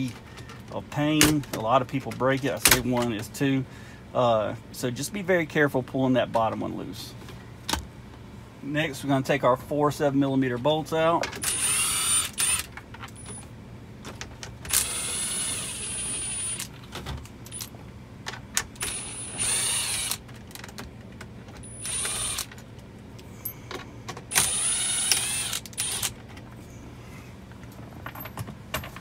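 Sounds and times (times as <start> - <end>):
power tool whining: 11.4 - 12.7, 14.7 - 16.7, 18.8 - 20.3, 21.6 - 22.6, 24.3 - 26.2.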